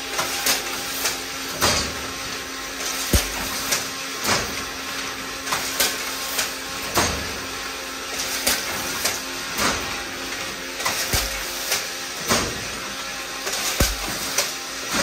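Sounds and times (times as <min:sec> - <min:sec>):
weaving machine sharp knocks: 0:03.1 - 0:03.8, 0:11.1 - 0:11.9, 0:13.8 - 0:14.5.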